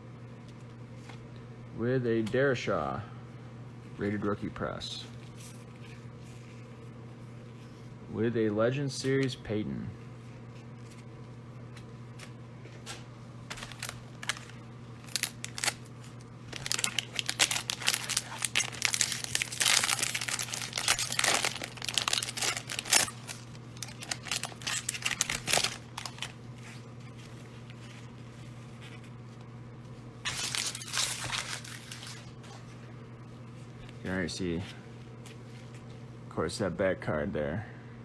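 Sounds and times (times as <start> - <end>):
wrapper tearing and crinkling: 13.5 - 27.2, 30.2 - 32.4.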